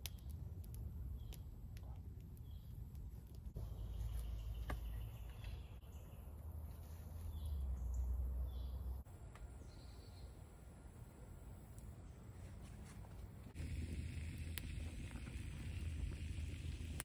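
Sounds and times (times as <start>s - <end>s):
steady low rumble: 0.0s - 17.0s
faint bird or insect chirps: 7.2s - 12.3s.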